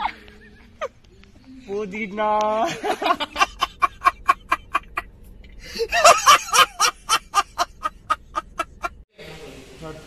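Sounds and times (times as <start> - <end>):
man laughing loudly: 2.6 - 9.0.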